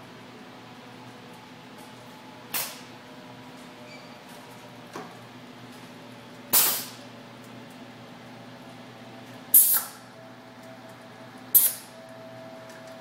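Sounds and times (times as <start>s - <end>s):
steady low hum: 0.0s - 13.0s
pneumatic exhaust air hiss: 6.5s - 7.0s, 9.5s - 10.0s, 11.5s - 12.0s.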